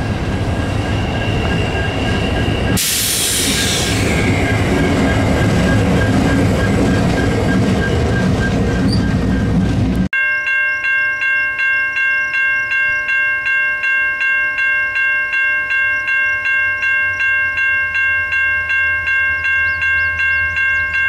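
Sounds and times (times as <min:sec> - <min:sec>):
freight train rolling by: 0:00.0 - 0:11.0, 0:11.8 - 0:21.0
high-pitched wheel squeal: 0:00.6 - 0:09.5
sudden hiss: 0:02.8 - 0:04.2.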